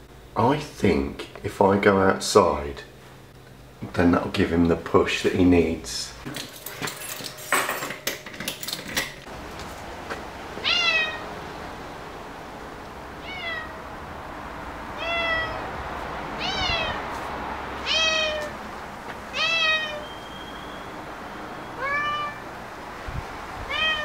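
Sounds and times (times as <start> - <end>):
cat meowing: 10.6 - 11.3, 13.2 - 13.8, 15.0 - 15.7, 16.4 - 17.0, 17.8 - 18.6, 19.3 - 20.1, 21.8 - 22.4, 23.7 - 24.0.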